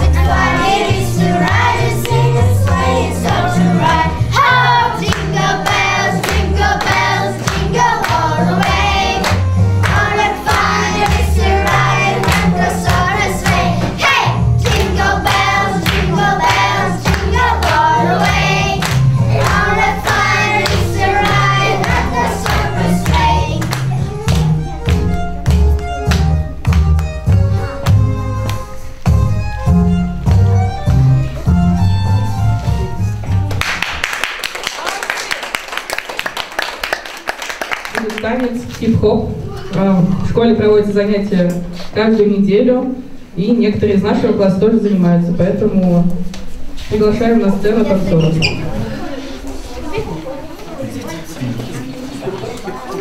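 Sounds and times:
children's choir singing: 0.0s - 24.2s
instrumental backing music: 0.0s - 34.0s.

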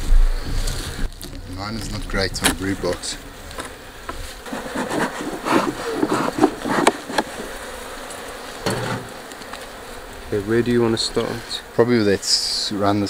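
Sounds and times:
bees buzzing: 1.5s - 13.0s
short scrapes and knocks: 4.4s - 7.6s, 8.6s - 9.2s.

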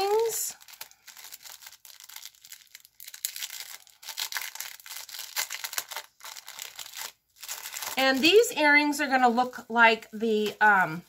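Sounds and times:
packaging crinkling: 0.0s - 8.6s.

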